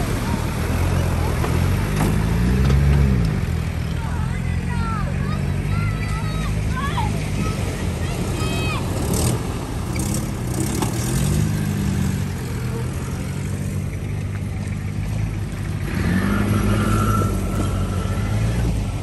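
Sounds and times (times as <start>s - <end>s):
jeep engine revving under load: 7.0s - 19.0s.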